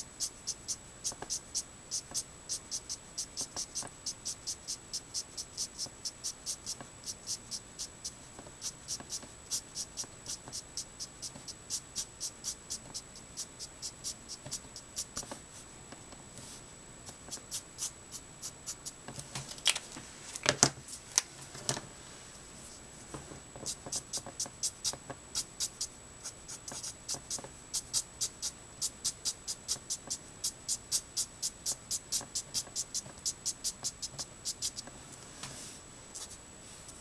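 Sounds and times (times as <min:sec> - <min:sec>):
felt tip strokes on paper: 0:00.2 - 0:15.6, 0:16.4 - 0:18.9, 0:23.7 - 0:34.8.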